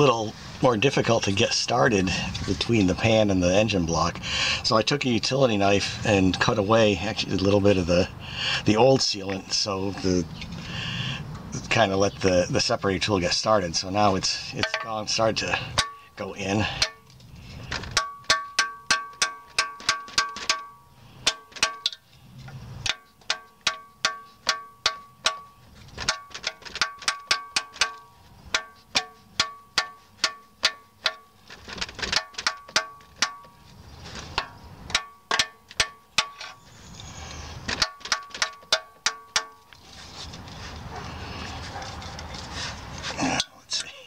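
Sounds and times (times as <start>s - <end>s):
hammer striking metal tool: 14.6s - 16.0s, 16.8s - 17.0s, 17.8s - 22.0s, 22.8s - 31.3s, 32.1s - 33.6s, 34.4s - 36.6s, 37.7s - 39.6s.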